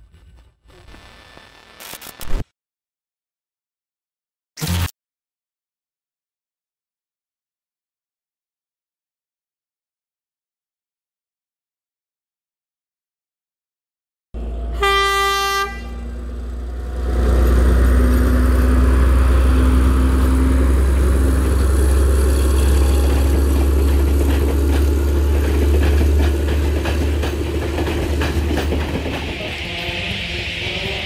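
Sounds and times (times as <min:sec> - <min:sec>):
train rumbling past: 0:14.4 - 0:31.0
locomotive horn blast: 0:14.7 - 0:16.3
wheels clicking over rails: 0:20.8 - 0:29.3.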